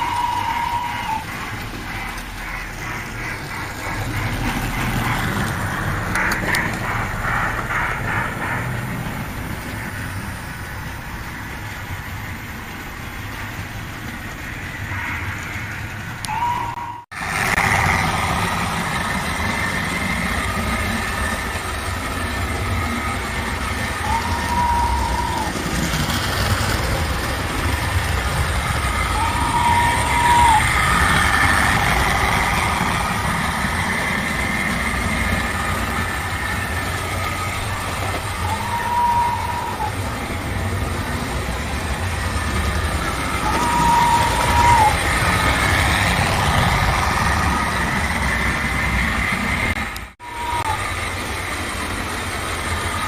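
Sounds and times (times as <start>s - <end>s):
wheel noise: 0.0s - 53.0s
model train motor rumble: 17.2s - 53.0s.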